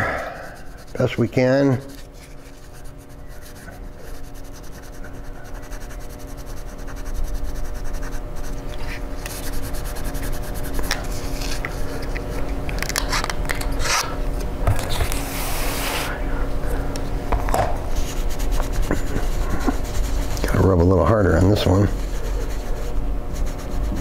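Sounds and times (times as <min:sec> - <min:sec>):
wipe scrubbing metal plate: 0:18.0 - 0:24.0.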